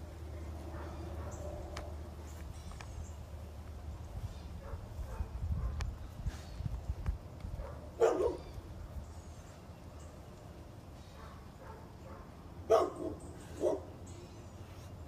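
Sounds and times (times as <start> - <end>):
puppy barking: 4.6 - 5.8, 7.6 - 8.5, 11.2 - 13.9.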